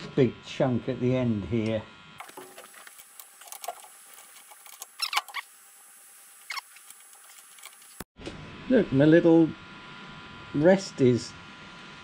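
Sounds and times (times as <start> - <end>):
metal squeaks and scrapes: 4.8 - 5.5, 6.4 - 7.0.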